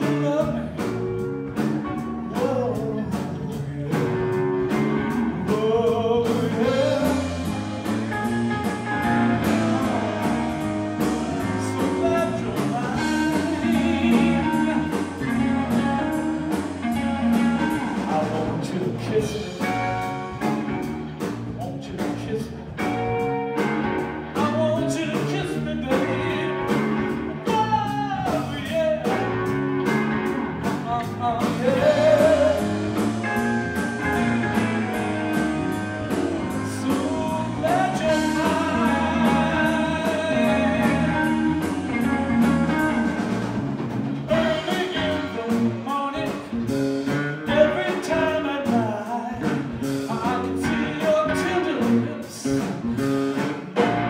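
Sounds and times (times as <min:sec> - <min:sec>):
person singing: 0:00.0 - 0:20.9, 0:24.3 - 0:29.6, 0:30.7 - 0:43.5, 0:44.3 - 0:46.8, 0:47.4 - 0:53.2
electric guitar bending notes: 0:00.0 - 0:21.6, 0:22.6 - 0:48.6, 0:49.2 - 0:54.0
blues-rock band playing: 0:00.0 - 0:54.0.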